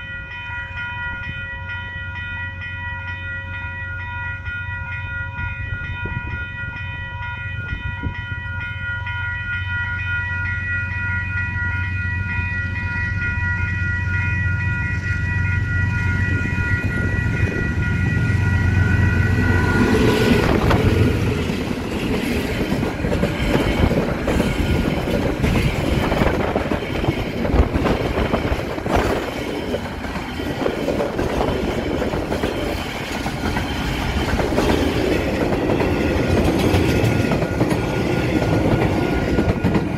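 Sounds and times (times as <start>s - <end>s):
level crossing alarm bells: 0.0s - 21.8s
diesel locomotive engine drone: 0.0s - 39.9s
freight wagons clattering on rails: 18.9s - 39.9s.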